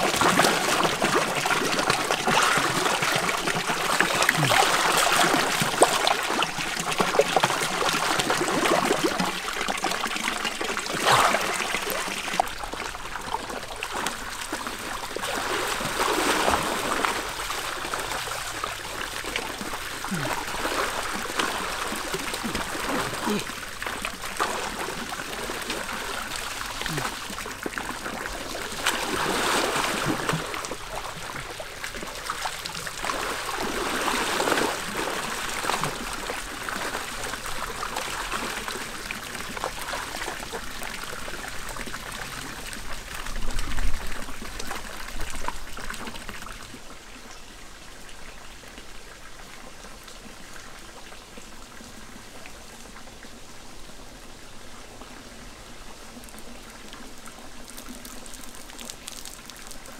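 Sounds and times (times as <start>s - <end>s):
people splashing in water: 0.0s - 9.4s, 10.6s - 12.5s
water trickling and pouring: 0.0s - 53.2s, 54.9s - 59.9s.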